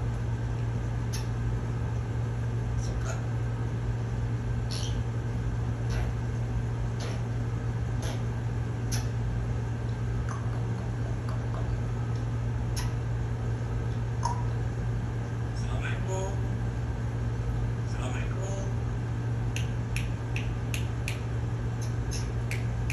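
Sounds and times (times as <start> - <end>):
low room hum: 0.0 - 22.9
parrot clicking: 19.6 - 22.9.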